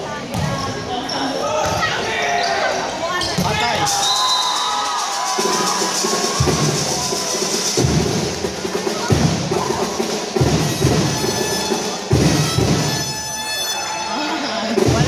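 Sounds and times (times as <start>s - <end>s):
drums beaten in steady rhythm: 4.8s - 13.3s, 14.6s - 15.0s.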